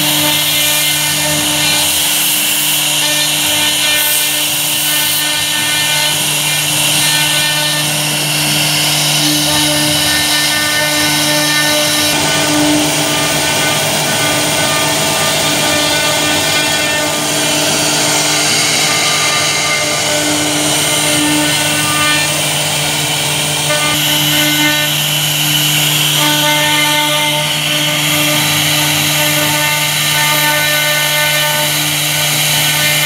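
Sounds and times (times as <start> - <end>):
cnc router spindle hum and whine: 0.0 - 33.0.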